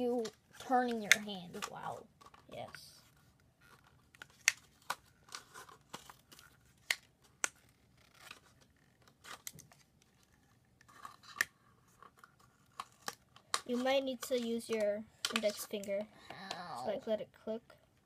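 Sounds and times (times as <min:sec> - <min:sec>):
faint plastic crinkling: 0:00.0 - 0:18.0
plastic strips clicking: 0:12.8 - 0:16.6.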